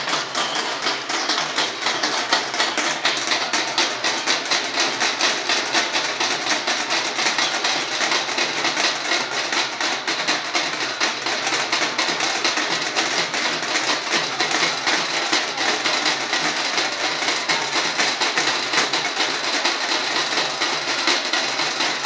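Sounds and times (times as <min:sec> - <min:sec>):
dance sticks clacking: 0:00.0 - 0:22.0
metal drums beaten with sticks: 0:00.0 - 0:22.0.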